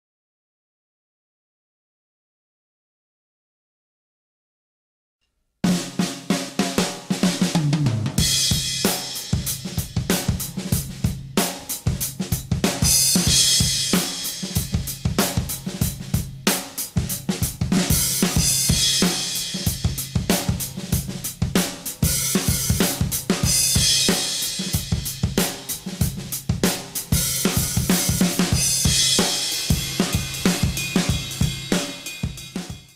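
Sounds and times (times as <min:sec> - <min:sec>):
drum kit playing fast beat: 0:05.7 - 0:32.9
cymbal crashes: 0:27.5 - 0:32.9.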